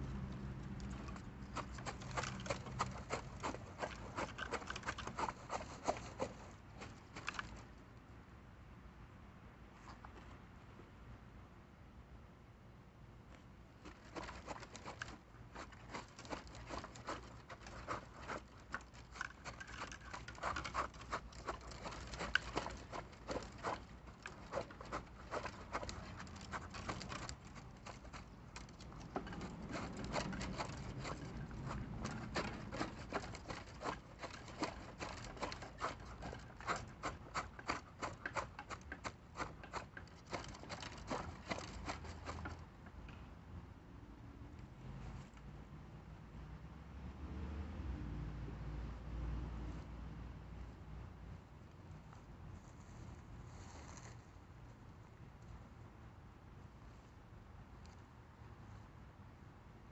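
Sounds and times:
concrete mix and soil scraping: 0:00.0 - 0:07.8, 0:13.8 - 0:43.1.

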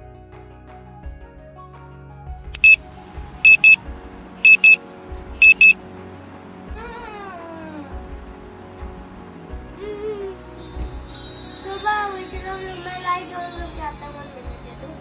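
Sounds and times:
soft background music: 0:00.0 - 0:15.0
digital alarm clock beeping: 0:02.6 - 0:02.8, 0:03.4 - 0:03.8, 0:04.4 - 0:04.8, 0:05.4 - 0:05.8.

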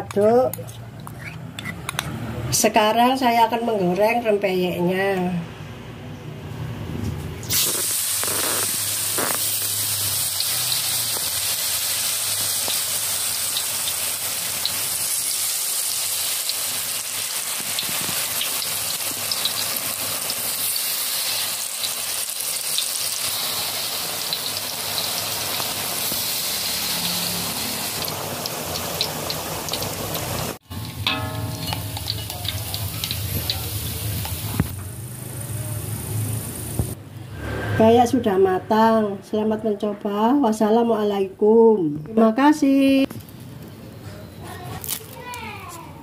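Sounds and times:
batter sizzling in hot oil: 0:07.5 - 0:37.0.

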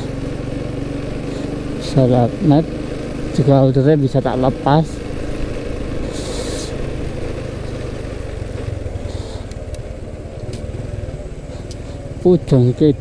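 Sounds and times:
motorcycle engine running: 0:00.0 - 0:13.0
road and wind noise: 0:00.0 - 0:13.0
short hiss: 0:06.1 - 0:06.7.

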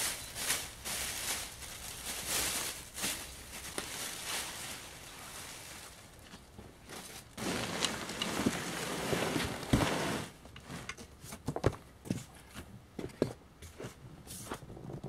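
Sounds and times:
plastic bag rustling: 0:00.0 - 0:10.8
cardboard flaps scraping: 0:06.9 - 0:10.9.

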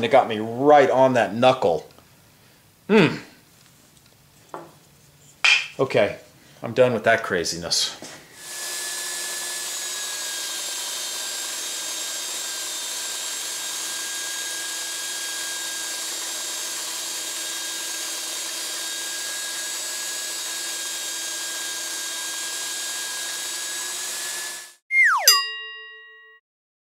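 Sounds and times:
belt sander whining: 0:08.2 - 0:24.8
falling swoosh with chime tones: 0:24.9 - 0:26.3.

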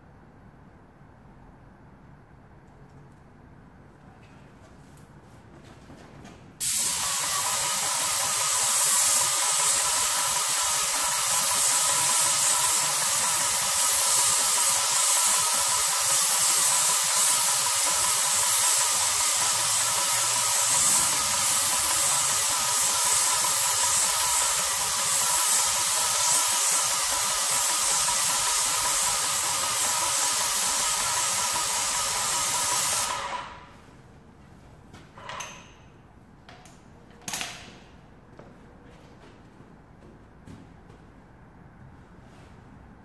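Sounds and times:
paint spray gun hissing: 0:06.6 - 0:33.7.

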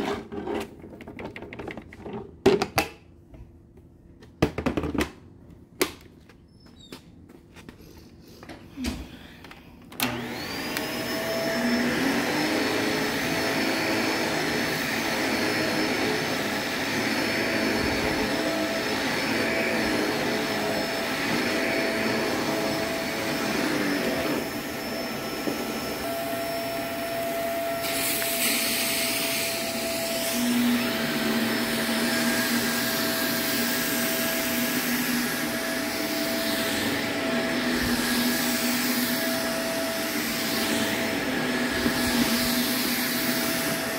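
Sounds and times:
vacuum cleaner motor whining: 0:08.8 - 0:43.9.

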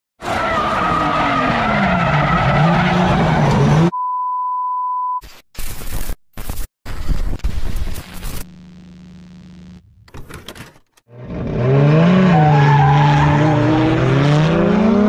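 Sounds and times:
car engines: 0:00.2 - 0:03.9, 0:11.1 - 0:15.0
bursts of static: 0:05.2 - 0:10.0.

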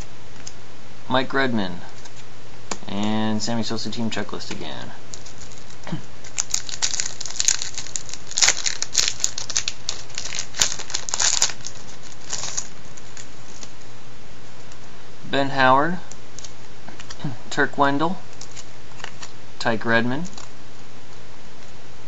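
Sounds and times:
plastic wrapper crinkling: 0:05.1 - 0:13.8, 0:18.3 - 0:19.4, 0:20.2 - 0:20.5.

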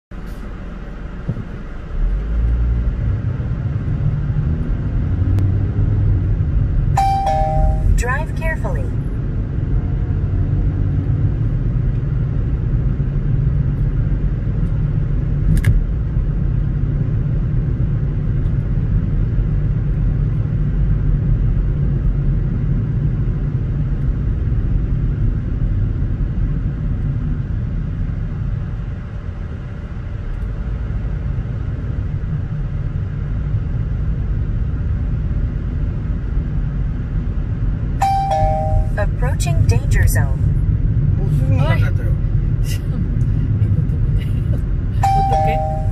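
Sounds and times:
car engine and tyre noise: 0:00.1 - 0:45.9
sharp click: 0:15.5 - 0:15.8.

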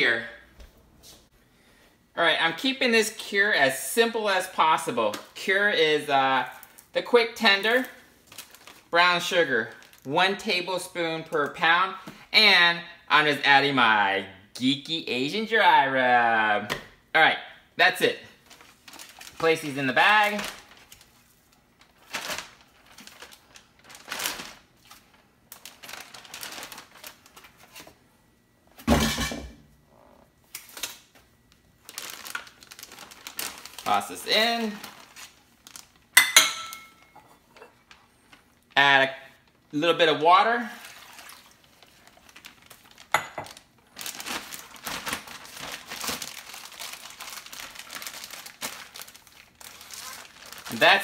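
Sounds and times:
plastic bag crinkling: 0:07.6 - 0:10.1, 0:18.4 - 0:28.0, 0:30.7 - 0:37.1, 0:40.8 - 0:51.0.

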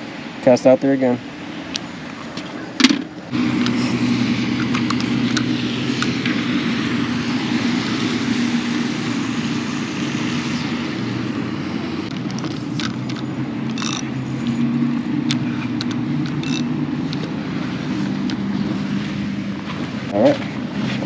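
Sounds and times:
motorboat engine running: 0:01.2 - 0:21.0.

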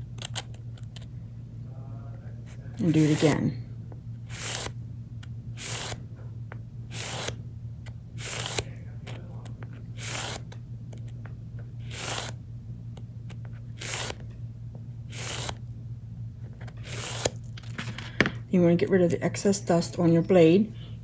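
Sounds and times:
blade scraping sanding block: 0:15.1 - 0:15.6, 0:16.8 - 0:17.4.

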